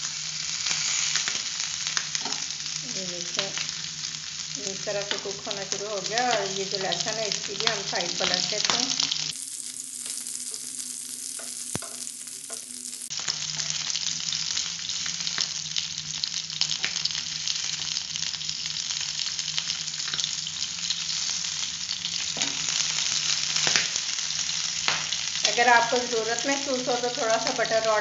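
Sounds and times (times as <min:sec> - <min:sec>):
meat sizzling in butter: 0:00.0 - 0:28.0.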